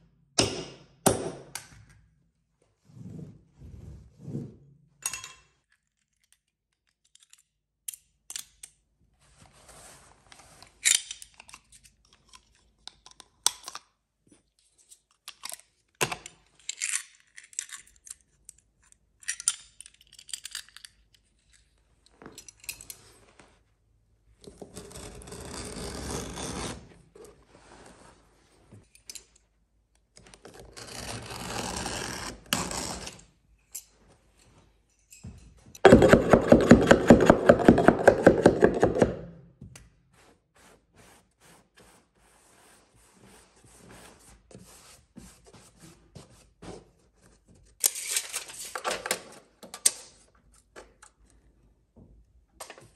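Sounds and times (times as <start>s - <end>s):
rough scraping on carpet: 2.8s - 4.7s.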